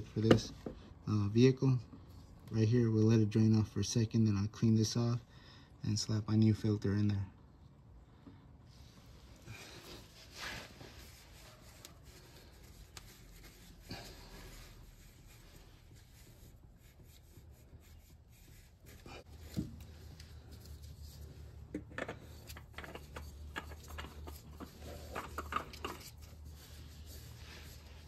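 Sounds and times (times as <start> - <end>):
towel wiping: 9.5 - 21.4, 24.1 - 28.0
oil filter being screwed on: 21.6 - 26.4.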